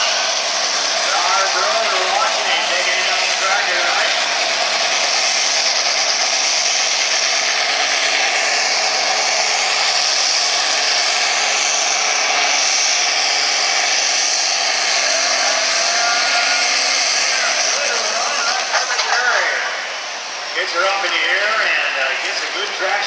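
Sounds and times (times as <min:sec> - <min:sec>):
tractor diesel engine revving high: 0:00.0 - 0:23.0.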